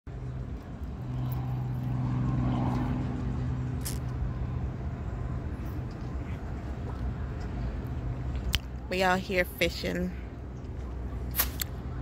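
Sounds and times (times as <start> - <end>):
low rumble: 0.1 - 8.8
engine humming: 0.1 - 12.0.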